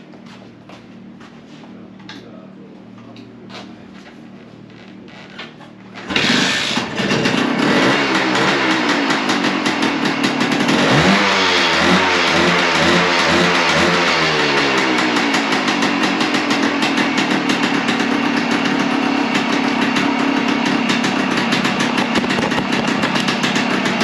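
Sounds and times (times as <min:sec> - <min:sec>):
two-stroke engine starting and revving: 0:06.0 - 0:24.0.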